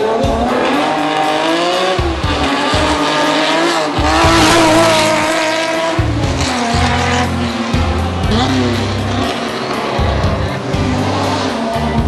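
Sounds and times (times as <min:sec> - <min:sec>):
race car engine revving past: 0:00.0 - 0:12.0.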